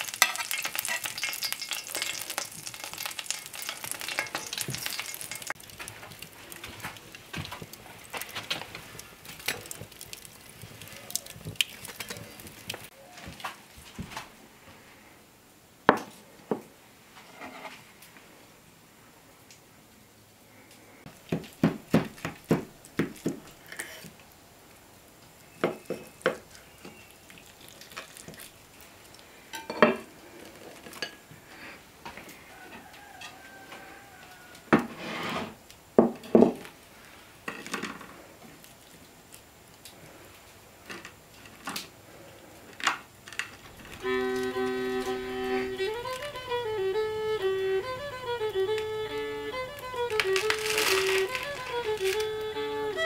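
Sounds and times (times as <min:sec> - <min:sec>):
plates and utensils clinking: 0:00.0 - 0:05.6, 0:29.5 - 0:30.1
fiddle tune: 0:43.9 - 0:53.0.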